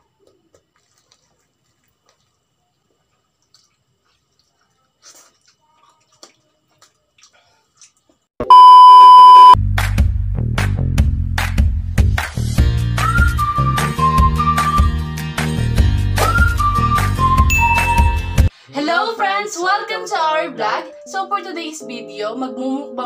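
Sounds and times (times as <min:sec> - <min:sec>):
fried chicken being eaten: 0:00.0 - 0:02.4, 0:03.0 - 0:08.2
electronic beep: 0:08.4 - 0:09.6, 0:17.5 - 0:18.5.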